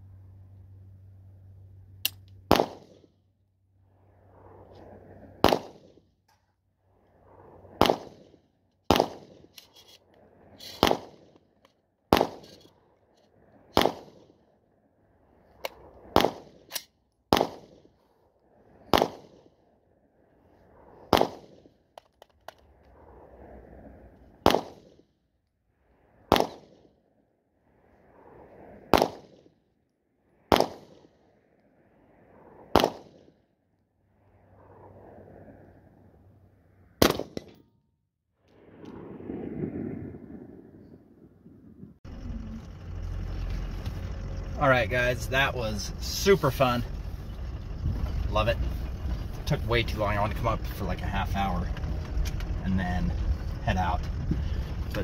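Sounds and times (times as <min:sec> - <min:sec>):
rifle shots: 0:02.5 - 0:03.1, 0:05.4 - 0:06.0, 0:07.8 - 0:09.5, 0:10.7 - 0:11.3, 0:12.1 - 0:12.6, 0:13.7 - 0:14.3, 0:16.1 - 0:18.0, 0:18.8 - 0:19.5, 0:21.0 - 0:21.7, 0:24.4 - 0:24.9, 0:26.3 - 0:26.8, 0:28.9 - 0:29.4, 0:30.5 - 0:31.1, 0:32.7 - 0:33.3, 0:37.0 - 0:37.6.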